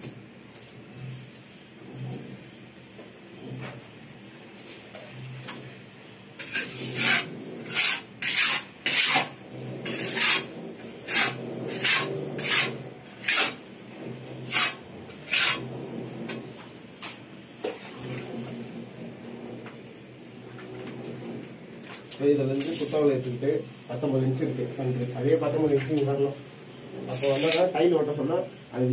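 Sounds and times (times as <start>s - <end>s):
rasping scrapes on mortar: 6.4s - 17.3s, 20.4s - 28.2s.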